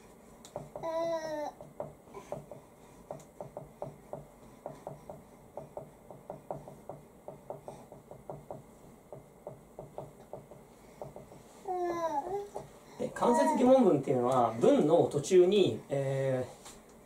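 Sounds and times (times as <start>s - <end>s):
marker pen writing on whiteboard: 1.6s - 11.6s.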